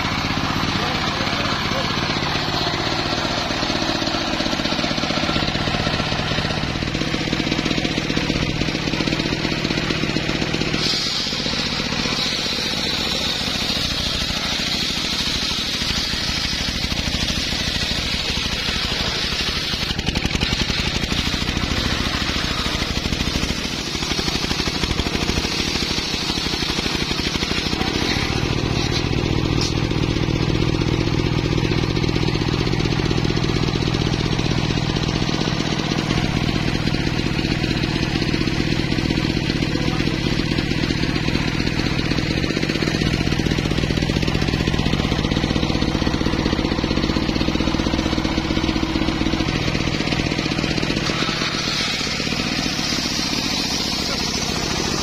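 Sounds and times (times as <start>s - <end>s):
diesel engine running: 0.0s - 55.0s
saw blade cutting log: 0.0s - 55.0s
circular blade spinning: 9.8s - 30.2s, 48.8s - 55.0s.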